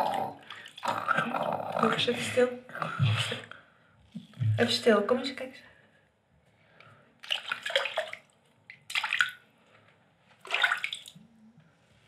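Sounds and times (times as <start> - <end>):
water splashing in bathtub: 0.0 - 5.1, 7.2 - 9.5, 10.4 - 11.4.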